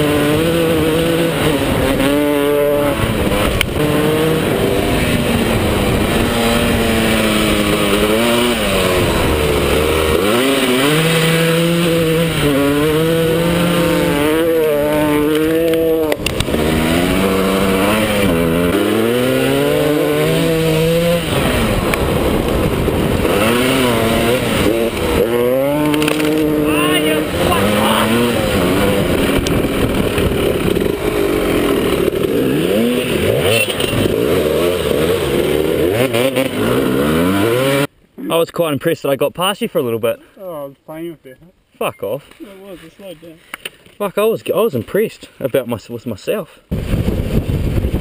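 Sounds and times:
dirt bike engine revving: 0.0 - 37.9.

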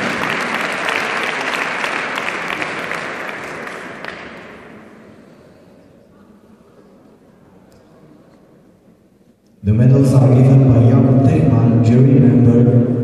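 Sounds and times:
audience applauding: 0.0 - 4.6.

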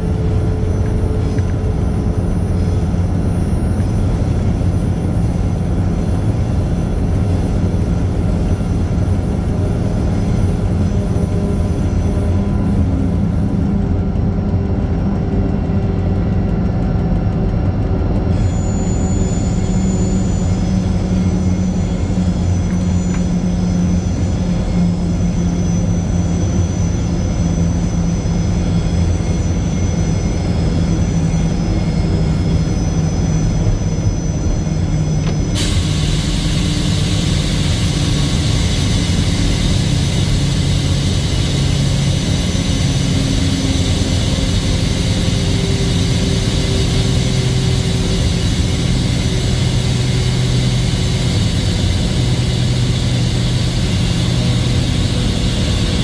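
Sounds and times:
diesel locomotive engine droning: 0.0 - 56.0.

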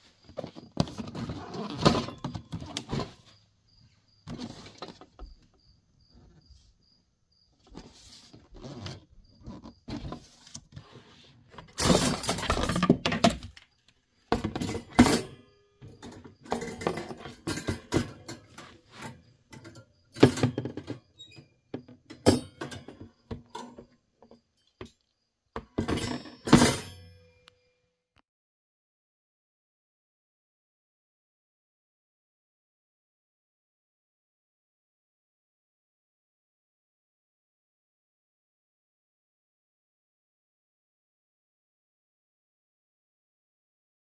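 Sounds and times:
cardboard scraping and rustling: 0.2 - 3.4, 4.3 - 5.2, 7.6 - 13.6
wire rack clinking: 11.8 - 13.1.

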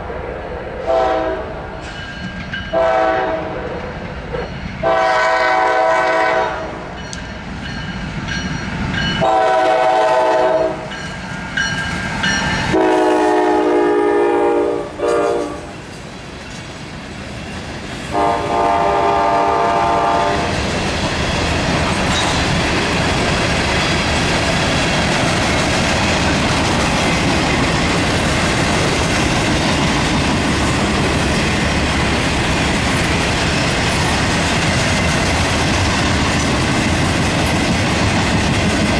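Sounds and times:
locomotive horn blasts: 0.8 - 1.5, 2.7 - 3.6, 4.8 - 6.8, 9.2 - 10.9, 12.7 - 15.7, 18.1 - 20.5
freight cars rumbling and clattering: 20.5 - 38.9.

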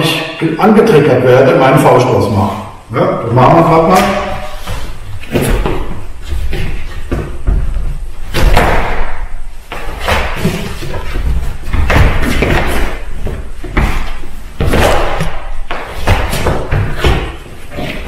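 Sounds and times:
feet thudding on wooden floor: 4.4 - 18.0.

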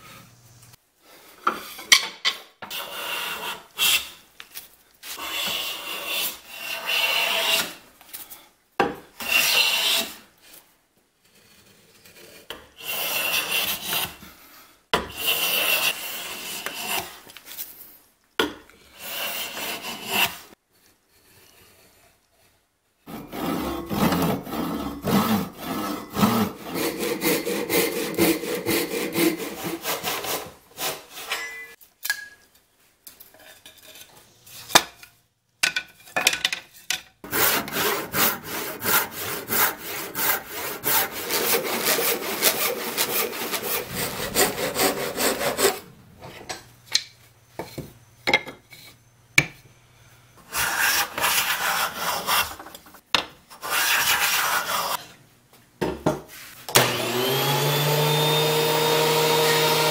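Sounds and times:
hand saw rasping through wood: 5.2 - 7.8, 9.2 - 10.2, 11.6 - 14.2, 15.1 - 17.2, 19.0 - 20.5, 23.1 - 31.3, 37.2 - 45.9, 50.5 - 52.6, 56.8 - 59.9.

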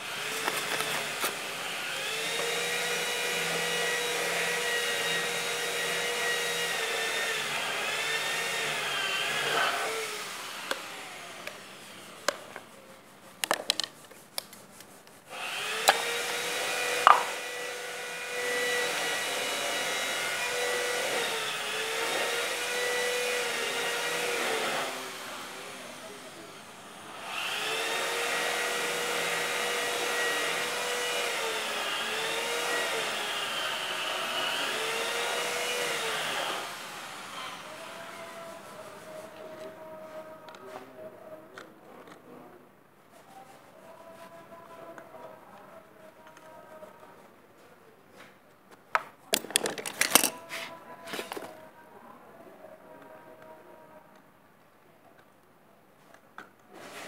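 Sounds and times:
small electric motor whining: 0.0 - 12.2, 15.3 - 38.7.

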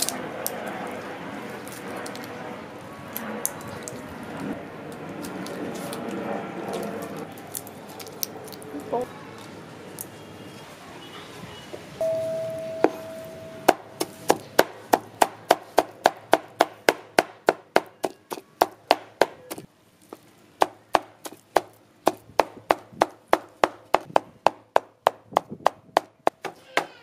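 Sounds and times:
short metallic ring: 12.0 - 13.7
cleaver chopping on wooden board: 13.7 - 19.7, 20.6 - 27.0.

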